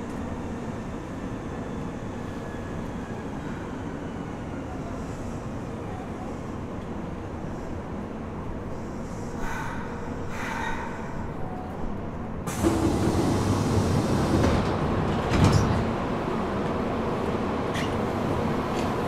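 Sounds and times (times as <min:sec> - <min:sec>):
train interior rumble: 0:04.7 - 0:19.0.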